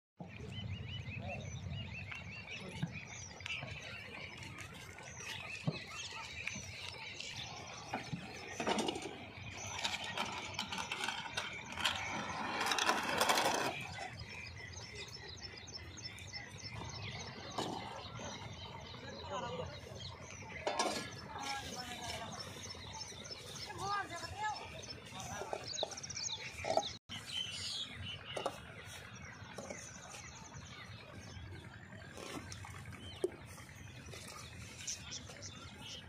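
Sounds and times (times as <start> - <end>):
birds chirping: 0.2 - 36.0
hand cart creaking and rattling: 6.7 - 14.4, 20.5 - 27.0
cart scraping: 7.3 - 14.4, 20.6 - 22.9.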